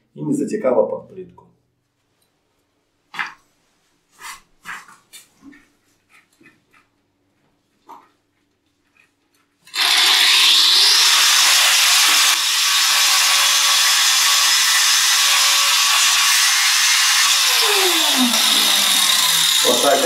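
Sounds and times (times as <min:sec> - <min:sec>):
angle grinder cutting: 0:09.7 - 0:20.0.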